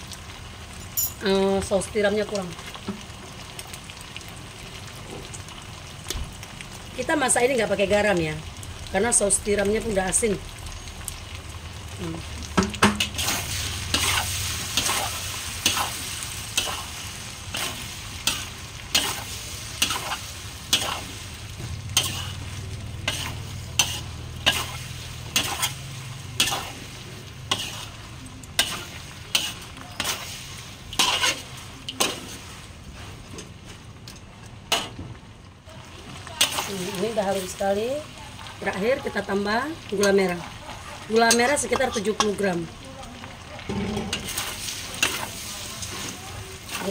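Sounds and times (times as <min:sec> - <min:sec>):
food sizzling: 0:00.0 - 0:46.9
metal spatula scraping wok: 0:13.0 - 0:33.5, 0:43.6 - 0:46.9.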